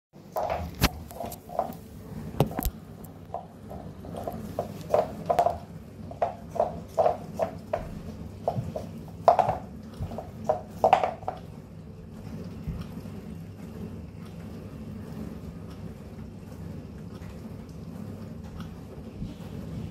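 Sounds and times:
cat lapping ice cream: 0.2s - 19.9s.

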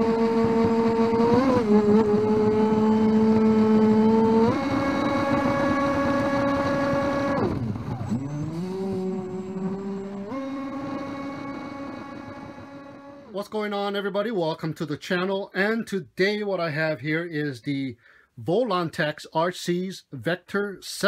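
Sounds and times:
electric motor whine: 0.0s - 13.3s.

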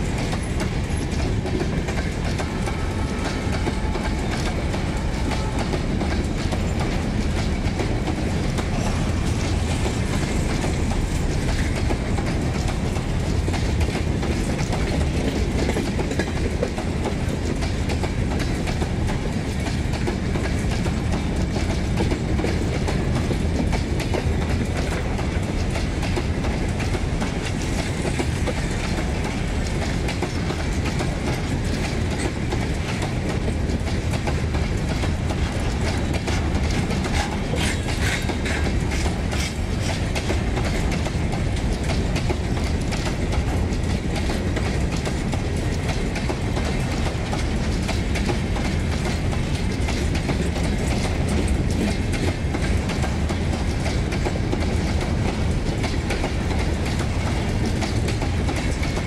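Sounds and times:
clickety-clack over rail joints: 0.0s - 59.0s
train wheels rumbling on rails: 0.0s - 59.0s.

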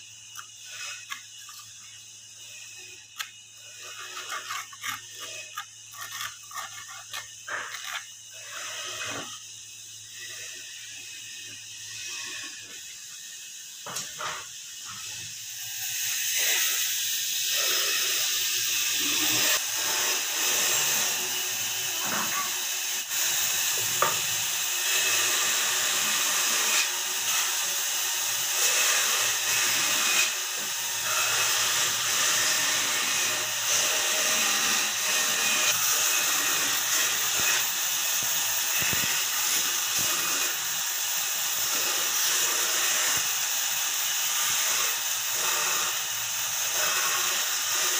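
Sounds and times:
bandsaw cutting wood: 0.0s - 9.4s, 17.5s - 47.9s.

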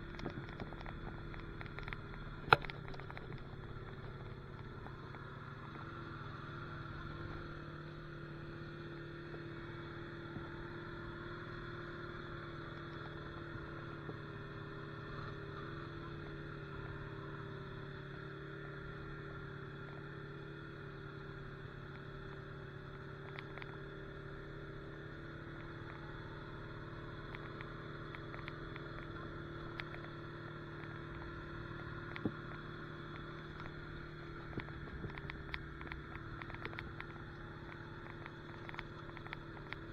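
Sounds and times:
light ticks and clicks: 0.0s - 5.9s, 21.8s - 39.9s
atv engine running steadily: 0.0s - 39.9s.

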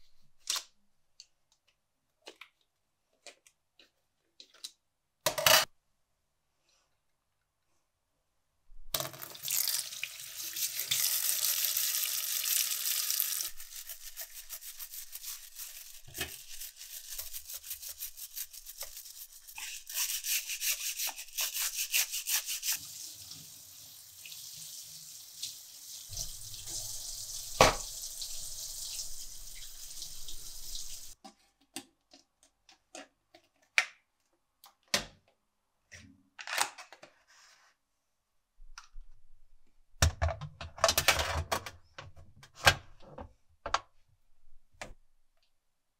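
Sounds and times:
tap running into a metal sink: 27.5s - 27.9s
plastic parts clicking and knocking: 40.0s - 43.9s.

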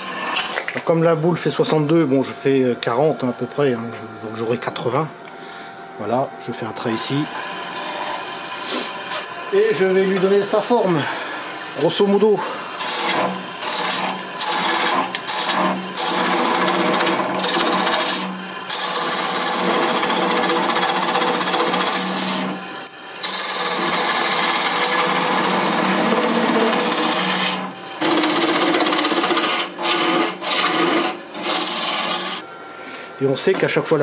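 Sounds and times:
gouge scraping spinning wood: 0.0s - 0.7s, 6.6s - 32.5s
lathe hum: 0.0s - 34.0s.

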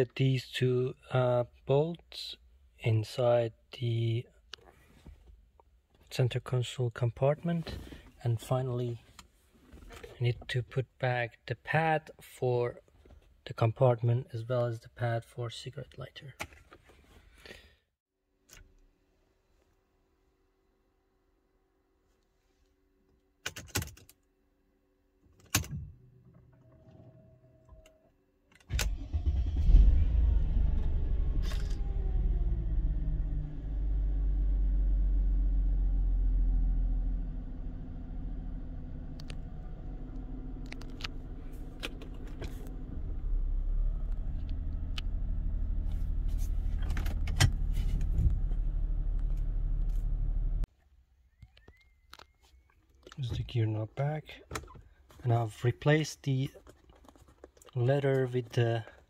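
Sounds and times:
car engine starting and idling: 28.7s - 50.7s.

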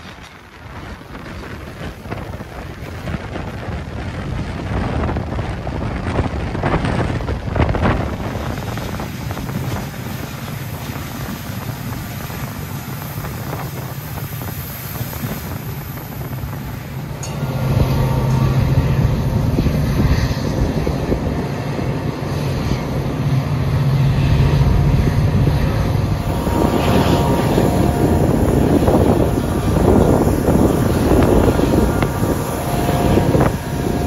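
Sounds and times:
train rumbling along track: 0.0s - 34.0s
wind buffeting microphone: 0.0s - 34.0s
train knocks: 26.2s - 34.0s.

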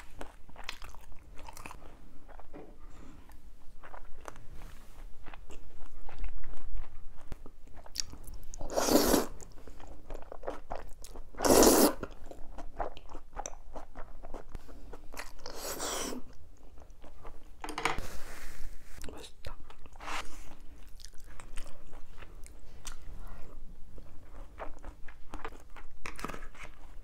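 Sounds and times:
chewing with wet mouth clicks: 0.2s - 2.5s, 5.2s - 8.6s, 20.8s - 23.1s
noodle slurps: 8.6s - 9.4s, 11.4s - 12.0s.

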